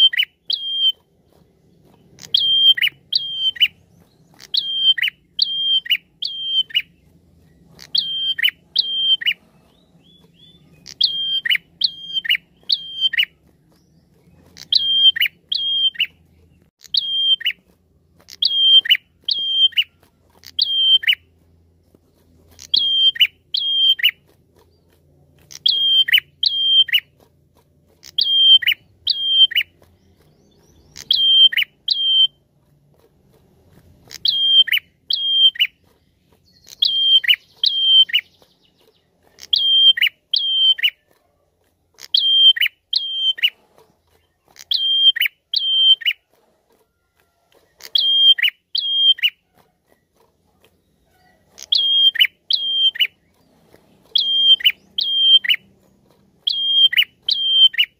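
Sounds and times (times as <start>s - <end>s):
bird whistling call: 0.0s - 1.0s, 2.2s - 7.0s, 7.8s - 13.3s, 14.6s - 16.2s, 16.8s - 17.6s, 18.3s - 21.2s, 22.6s - 24.2s, 25.5s - 27.1s, 28.0s - 29.7s, 30.4s - 32.4s, 34.1s - 35.8s, 36.4s - 38.6s, 39.4s - 41.0s, 42.0s - 43.6s, 44.6s - 46.2s, 47.8s - 49.4s, 51.2s - 53.4s, 54.1s - 55.7s, 56.4s - 57.9s.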